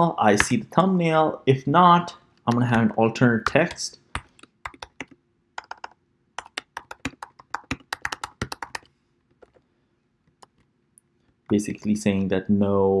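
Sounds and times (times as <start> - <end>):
typing on keyboard: 3.5 - 9.6.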